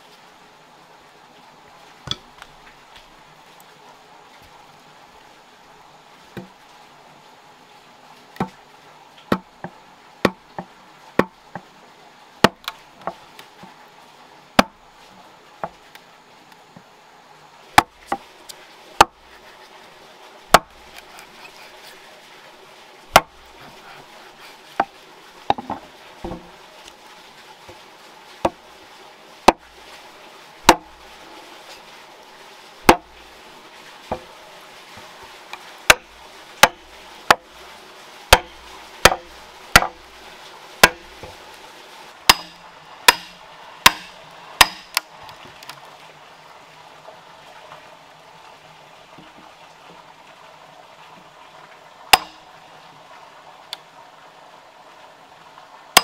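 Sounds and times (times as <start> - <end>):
chisel and wedges striking wood: 20.5 - 21.3, 23.1 - 23.3, 32.9 - 33.1, 36.6 - 37.4, 38.3 - 40.0, 40.8 - 41.1, 42.3 - 45.0, 52.1 - 52.4.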